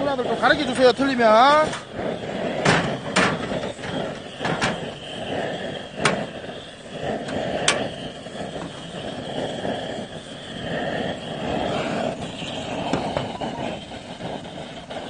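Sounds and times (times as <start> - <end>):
gas stove hiss: 0.0 - 15.0.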